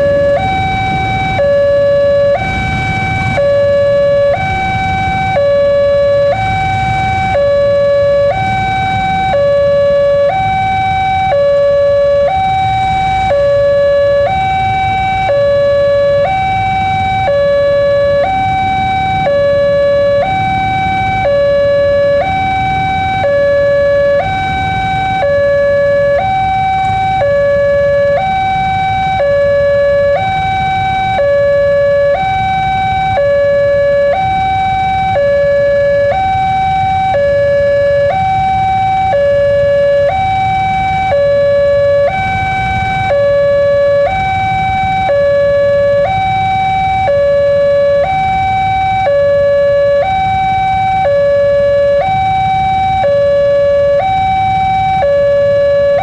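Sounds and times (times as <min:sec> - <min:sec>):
low rumble of traffic: 0:00.0 - 0:56.0
two-tone crossing alarm: 0:00.0 - 0:56.0.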